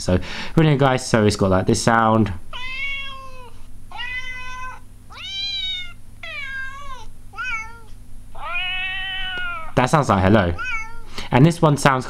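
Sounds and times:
recorded cat meows: 2.5s - 9.8s, 10.6s - 11.1s.

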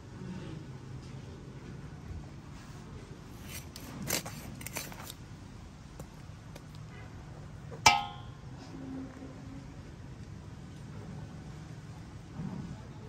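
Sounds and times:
knife cutting chicken: 3.4s - 5.1s.

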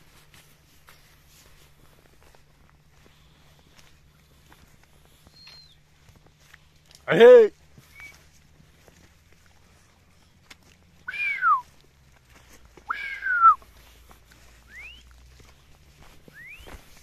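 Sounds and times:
high arching whistle calls: 5.2s - 5.9s, 7.8s - 8.3s, 11.0s - 11.7s, 12.8s - 13.6s, 14.6s - 15.1s, 16.2s - 17.0s
short upward-sliding whistles: 7.9s - 8.2s, 11.1s - 11.6s, 12.9s - 13.6s, 14.7s - 15.1s, 16.3s - 16.9s.

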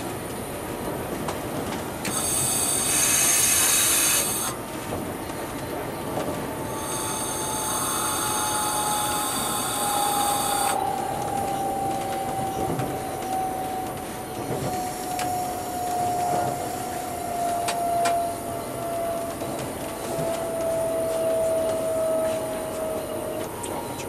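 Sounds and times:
train motor whine: 0.0s - 24.0s
wheel squeal: 2.1s - 4.6s, 6.6s - 23.0s.

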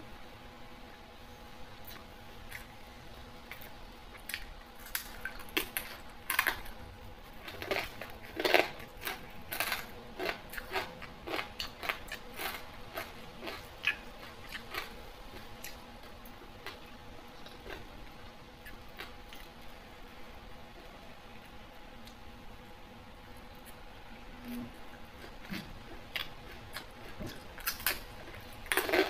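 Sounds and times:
crunchy bites: 3.5s - 17.9s.

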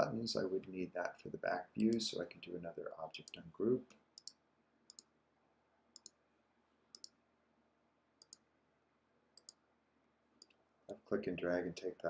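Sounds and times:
computer mouse clicking: 1.8s - 2.0s, 3.2s - 3.4s, 4.2s - 5.1s, 6.0s - 6.2s, 8.2s - 8.4s, 9.4s - 9.6s.

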